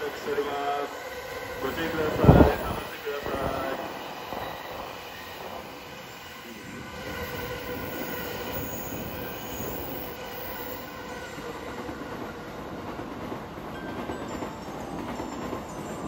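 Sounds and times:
train wheels on rails: 0:00.0 - 0:16.0.

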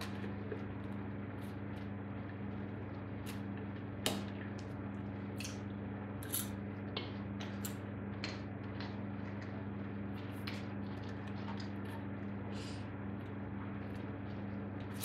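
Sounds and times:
low electrical hum: 0:00.0 - 0:15.0.

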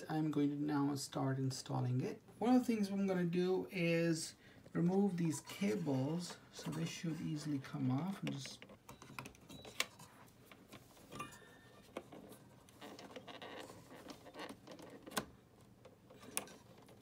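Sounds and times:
cable rustling: 0:04.5 - 0:17.0.

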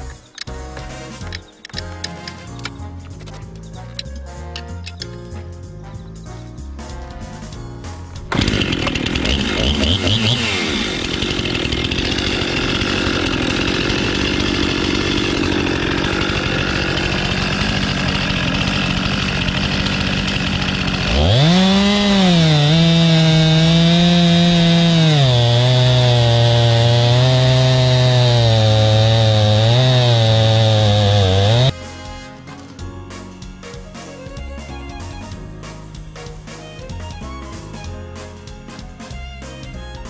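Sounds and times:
chainsaw cutting log: 0:08.2 - 0:31.8.

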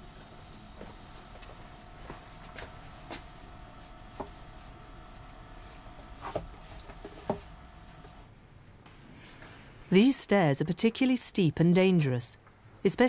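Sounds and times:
books knocking and scraping on shelves: 0:05.7 - 0:08.2.

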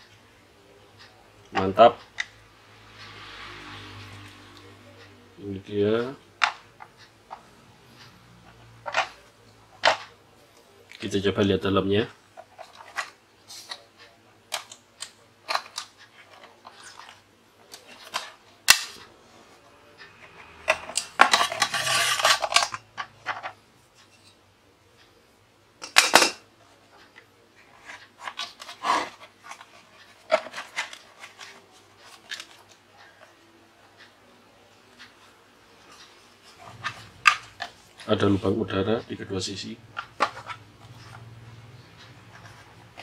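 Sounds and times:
rattling scrape: 0:20.2 - 0:23.5.

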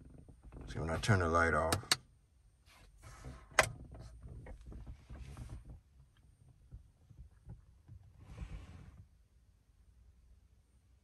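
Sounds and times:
faint rustling: 0:02.6 - 0:09.1.

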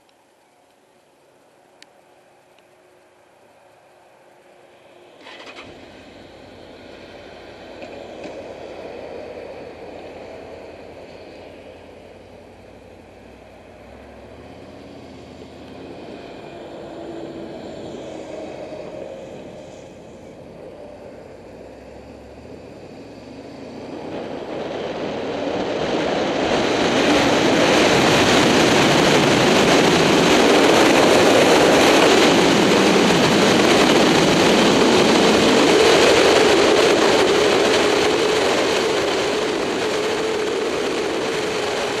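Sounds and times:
motorcycle engine revving: 0:05.1 - 0:42.0
wind noise on microphone: 0:22.6 - 0:42.0.

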